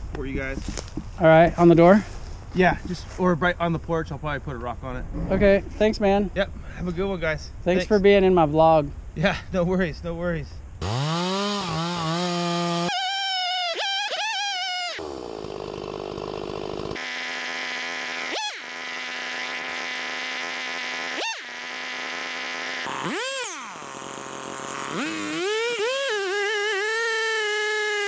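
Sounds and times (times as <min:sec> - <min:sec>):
chainsaw cutting tree trunk: 0:00.6 - 0:01.2, 0:10.8 - 0:28.0.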